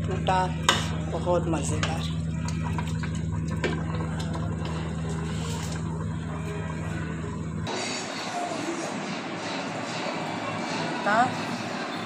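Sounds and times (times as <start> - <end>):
steady rushing background noise: 7.6 - 12.0.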